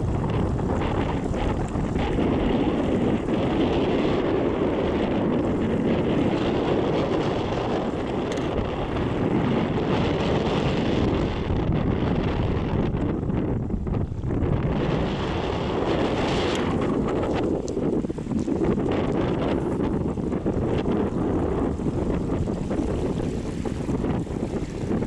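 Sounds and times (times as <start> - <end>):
wind buffeting microphone: 0.0 - 25.0
small waves lapping: 15.3 - 25.0.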